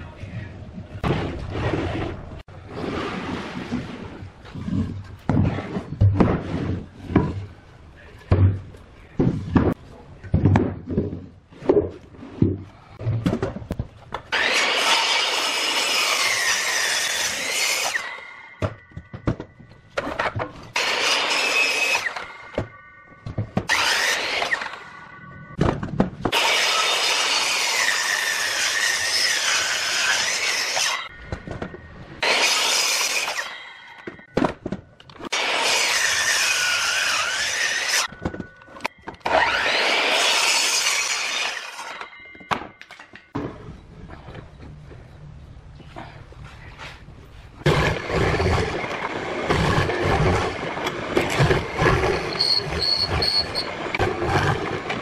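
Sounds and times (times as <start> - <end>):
miter saw cutting wood: 14.3 - 18.3, 20.8 - 22.3, 23.7 - 24.9, 26.3 - 31.1, 32.2 - 33.9, 35.3 - 38.1, 39.2 - 42.0
saw blade whining: 14.3 - 25.6, 26.3 - 34.3, 35.2 - 43.2, 47.7 - 55.0.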